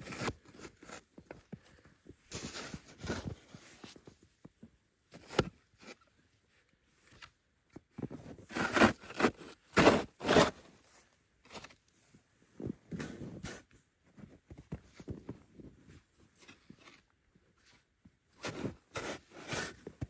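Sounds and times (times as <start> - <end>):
shovel scraping snow: 0.0 - 1.1, 2.3 - 3.3, 8.4 - 10.7, 18.4 - 20.0.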